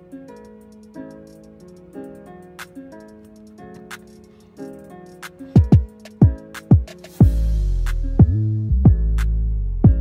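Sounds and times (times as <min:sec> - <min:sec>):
deep electronic kick drum hits: 0:05.6 - 0:09.2.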